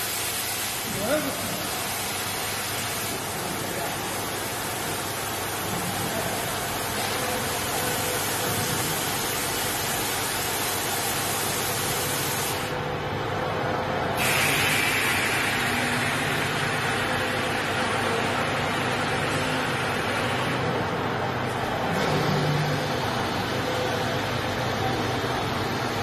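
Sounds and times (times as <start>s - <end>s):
welding machine hissing: 0.0s - 12.8s, 14.1s - 20.6s.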